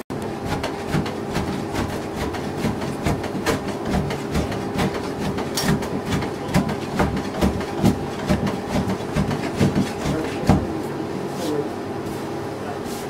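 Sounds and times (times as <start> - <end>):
steady background hum: 0.1 - 13.0.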